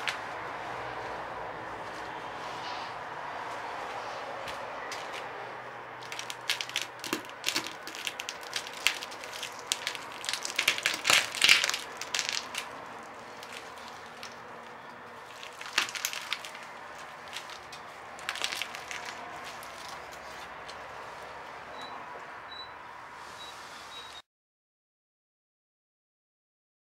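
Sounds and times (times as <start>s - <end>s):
eggshell crunching under boot: 6.0s - 20.7s.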